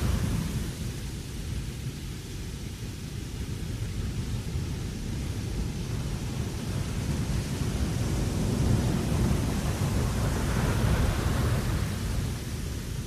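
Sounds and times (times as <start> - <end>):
wind blowing: 5.7 - 13.0.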